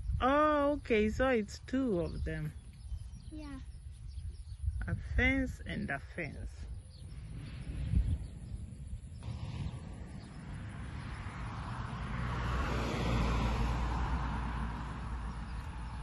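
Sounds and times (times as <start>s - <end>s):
car passing: 7.1s - 16.0s.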